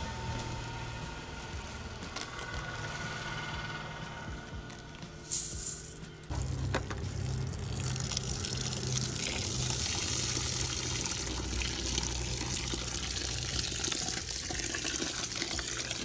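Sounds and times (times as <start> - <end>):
water pouring into plastic bucket: 6.3 - 16.0.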